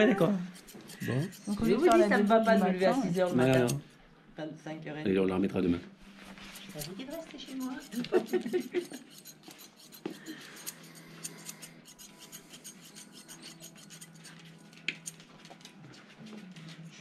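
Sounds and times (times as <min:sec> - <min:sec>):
scissors snipping fur: 0:00.0 - 0:03.9, 0:06.4 - 0:15.2.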